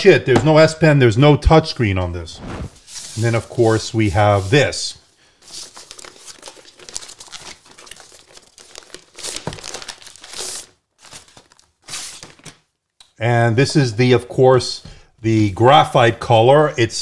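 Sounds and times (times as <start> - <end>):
laptop sliding out of sleeve: 2.3 - 3.0
plastic wrapping rustling: 5.4 - 12.6.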